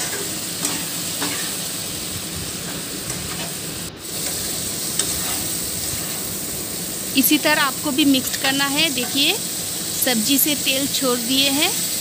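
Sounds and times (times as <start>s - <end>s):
food sizzling in oil: 0.0s - 12.0s
spatula scraping and clicking on pan: 5.0s - 5.5s.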